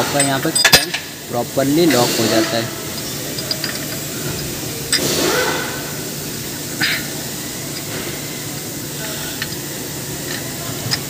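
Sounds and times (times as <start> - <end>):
metal tool clicks and clank: 0.0 - 1.1, 1.9 - 4.0
steady background hum: 0.0 - 11.0.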